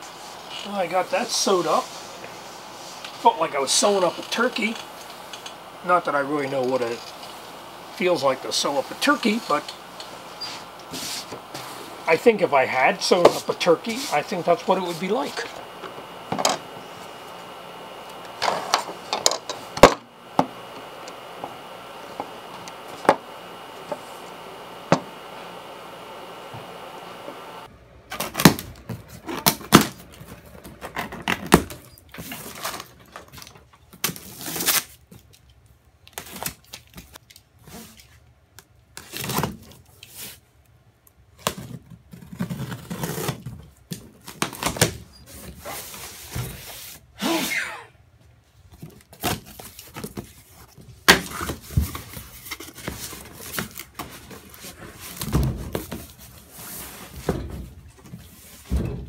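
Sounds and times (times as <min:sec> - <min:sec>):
knife slitting packing tape: 0:34.0 - 0:35.0, 0:42.3 - 0:43.5.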